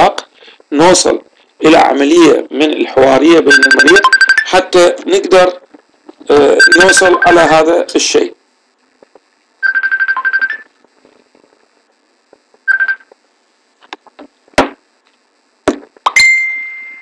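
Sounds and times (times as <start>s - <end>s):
electronic beeps: 3.4s - 4.9s, 6.3s - 7.6s, 9.6s - 10.7s
high chime: 16.2s - 17.0s.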